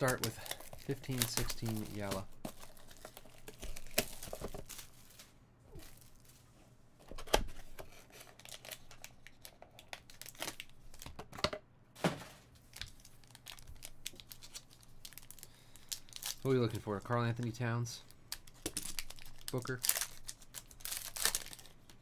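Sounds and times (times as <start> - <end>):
foil packs crinkling and tearing: 0.0 - 6.3, 8.1 - 11.1, 12.7 - 17.6, 18.4 - 22.0
rustling: 0.0 - 6.7.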